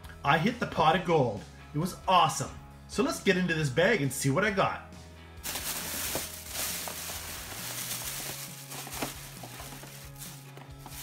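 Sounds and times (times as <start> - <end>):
plastic bag crinkling: 5.4 - 11.0.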